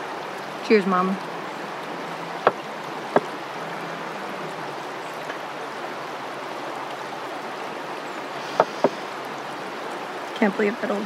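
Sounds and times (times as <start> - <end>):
creek rushing: 0.0 - 11.0.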